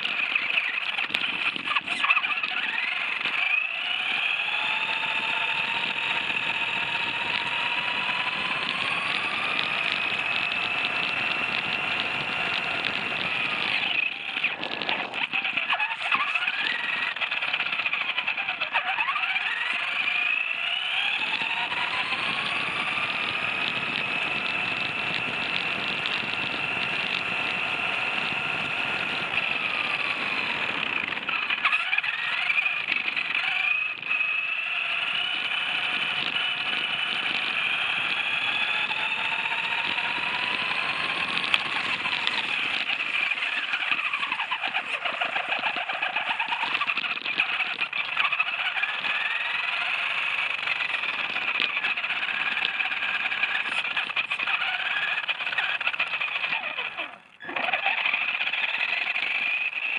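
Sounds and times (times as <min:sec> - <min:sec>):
rc buggy drivetrain whining: 0:00.0 - 0:59.9
tyres crunching gravel: 0:34.8 - 0:59.5.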